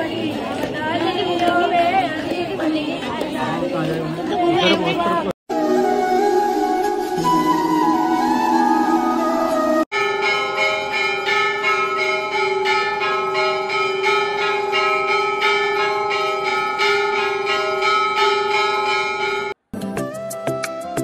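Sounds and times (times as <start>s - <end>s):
temple bells ringing: 9.9s - 19.6s.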